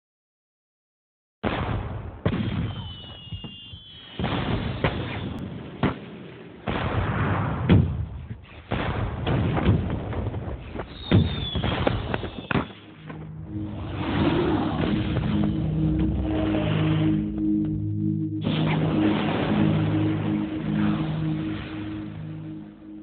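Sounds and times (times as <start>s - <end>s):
sharp bangs and booms: 1.4s - 17.6s
short falling whistles: 2.7s - 4.2s, 10.9s - 12.5s
noisy rumble: 12.8s - 23.0s.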